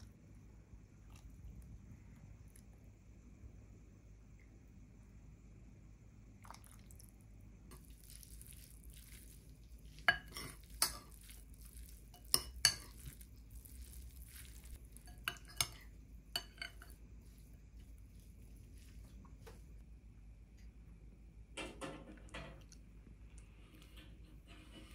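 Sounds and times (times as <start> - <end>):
metal spoon scraping a bowl: 10.0 - 17.0.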